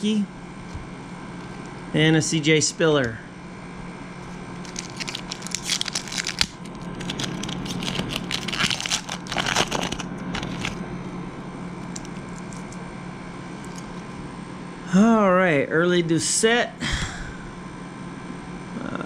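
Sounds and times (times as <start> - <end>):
foil wrapper tearing and crinkling: 4.2 - 10.8.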